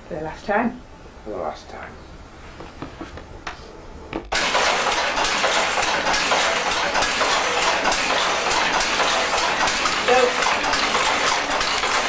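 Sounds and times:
loom clattering: 4.3s - 12.0s.

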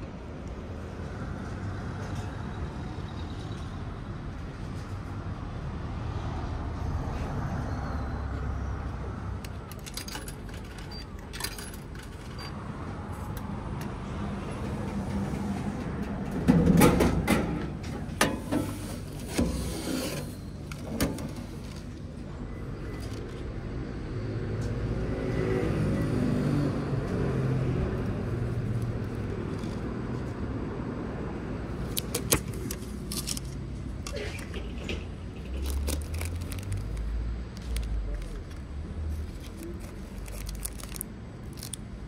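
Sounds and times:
foil packet crackling: 35.6s - 41.8s.

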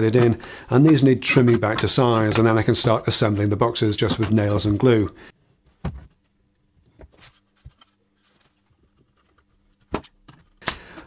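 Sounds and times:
wooden parts knocking: 0.0s - 4.9s.

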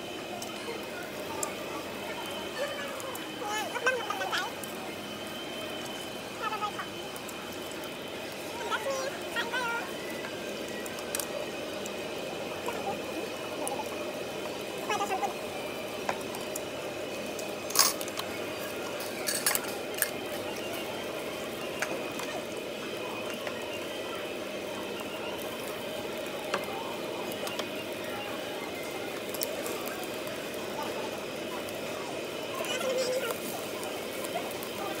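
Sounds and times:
restaurant background hum: 0.0s - 35.0s.

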